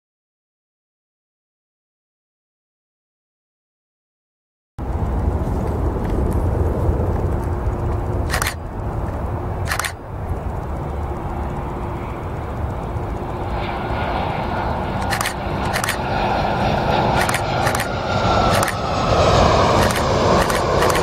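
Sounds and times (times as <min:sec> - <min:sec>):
jet airliner engines rumbling: 0:04.8 - 0:21.0
wind on microphone: 0:04.8 - 0:21.0.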